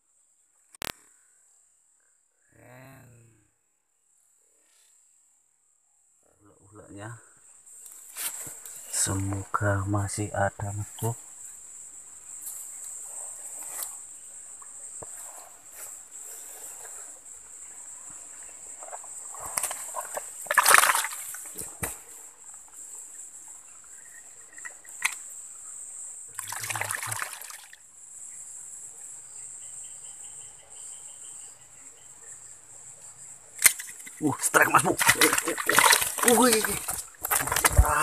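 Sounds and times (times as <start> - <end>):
hand splashing in water: 20.5 - 21.3, 26.4 - 27.6, 35.0 - 38.0.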